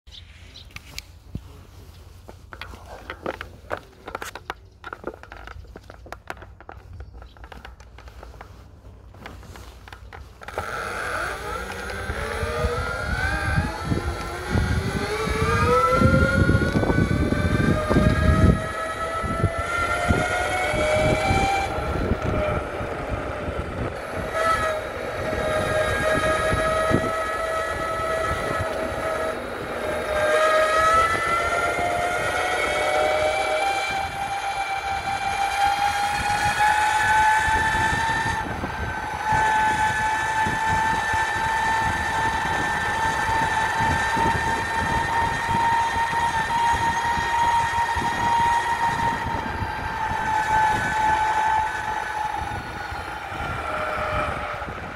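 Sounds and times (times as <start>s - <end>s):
electric motors whining: 2.5s - 54.9s.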